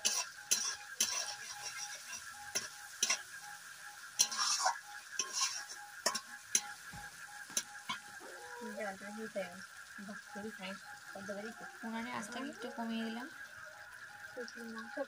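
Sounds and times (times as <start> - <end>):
metal spatula scraping a pan: 0.0 - 8.2
masala frying: 0.0 - 15.0.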